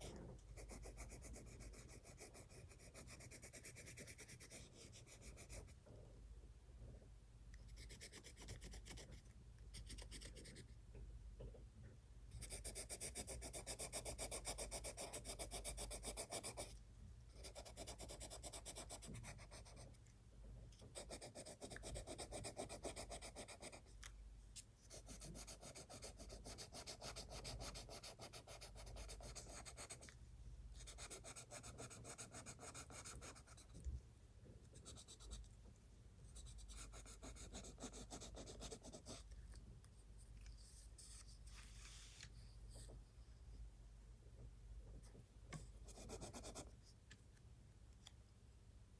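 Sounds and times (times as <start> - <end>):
pencil scratching on paper: 0.0 - 5.8, 7.7 - 10.8, 12.4 - 16.8, 17.4 - 20.0, 20.8 - 23.9, 24.9 - 30.1, 30.8 - 33.8, 34.7 - 35.4, 36.4 - 39.3, 40.4 - 41.6, 45.5 - 46.8.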